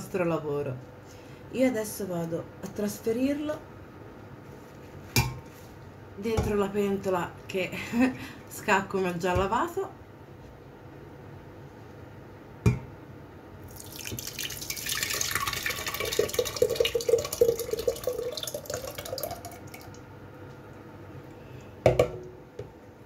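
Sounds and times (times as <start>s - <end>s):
thick puree gurgling pour: 13.7s - 20.0s.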